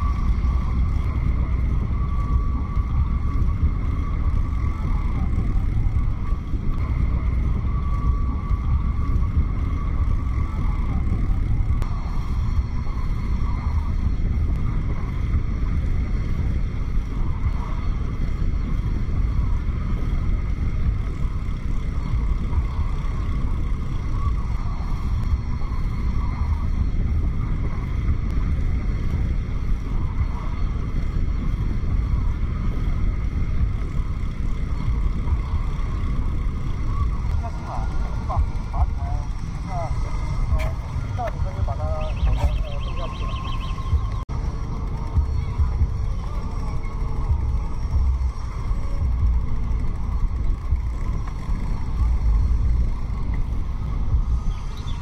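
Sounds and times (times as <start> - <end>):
bicycle tyre noise: 0.0 - 55.0
wind buffeting microphone: 0.0 - 55.0
thin high tone: 36.9 - 49.0.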